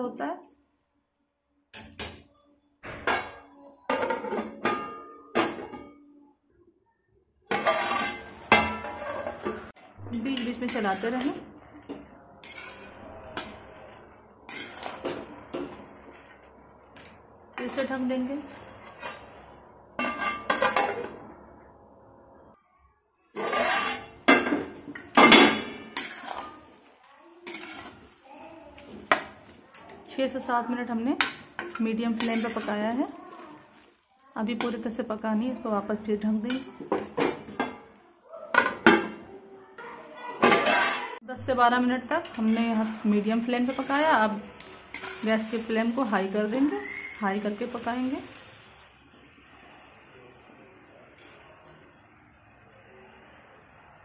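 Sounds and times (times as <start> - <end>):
spatula scraping through thick food: 7.5 - 9.6, 12.4 - 16.6, 17.6 - 21.0, 23.4 - 24.2, 26.0 - 29.7, 40.5 - 41.2
metal ladle clanking in pan: 7.5 - 16.2, 20.0 - 21.2, 23.4 - 26.8, 27.4 - 30.4, 31.2 - 33.4, 38.5 - 39.2, 40.4 - 41.2, 42.2 - 47.9
greens hissing in pan: 7.5 - 21.3, 23.3 - 39.0, 40.2 - 54.0.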